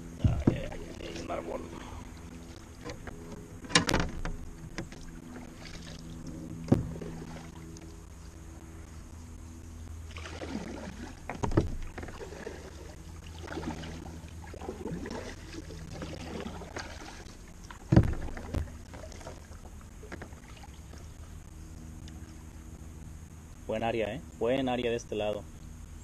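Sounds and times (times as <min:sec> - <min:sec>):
steady low hum: 0:00.0 - 0:26.0
kayak paddle strokes splashing: 0:00.1 - 0:08.4, 0:10.0 - 0:22.6.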